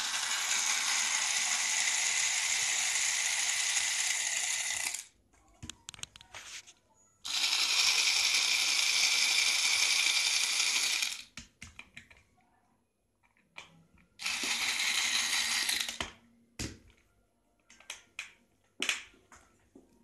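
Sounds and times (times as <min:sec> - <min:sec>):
electric screwdriver running: 0:00.0 - 0:05.1, 0:07.3 - 0:11.3, 0:14.2 - 0:16.0.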